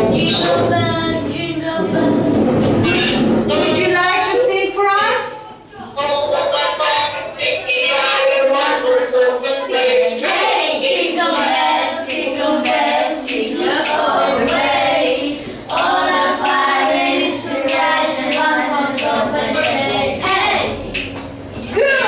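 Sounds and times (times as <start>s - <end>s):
children singing: 0.0s - 3.2s, 5.8s - 21.0s
hand clapping: 10.8s - 21.4s.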